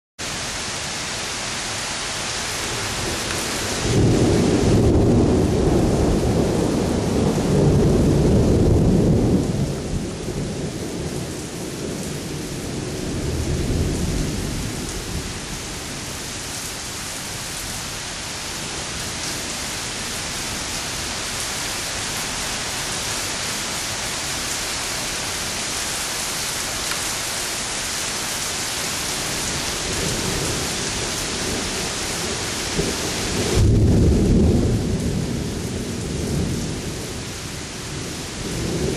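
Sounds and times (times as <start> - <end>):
heavy rain falling: 0.2 - 38.9
thunder rumbling: 2.9 - 15.5, 29.6 - 38.9.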